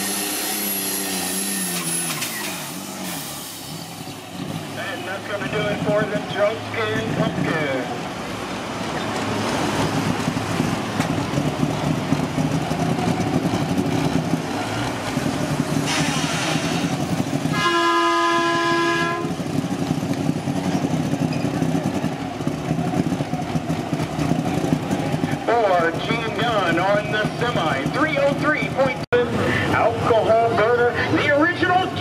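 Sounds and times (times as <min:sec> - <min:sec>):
large vehicle engine rattling: 0:00.0 - 0:32.0
burst of hiss: 0:02.3 - 0:04.0, 0:15.8 - 0:16.8
air horn blast: 0:17.5 - 0:19.4.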